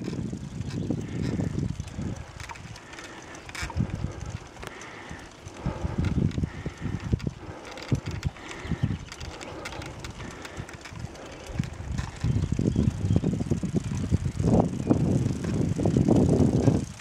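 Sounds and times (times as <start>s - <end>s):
sharp clicks: 0.0s - 13.0s
camera rattling on bicycle: 0.0s - 17.0s.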